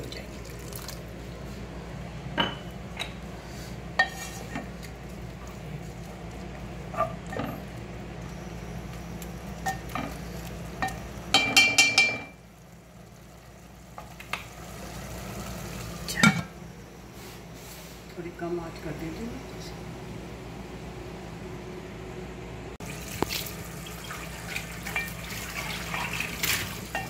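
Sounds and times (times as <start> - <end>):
wooden spoon stirring in pot: 3.3 - 7.8
spoon knocking against pot: 10.8 - 12.4.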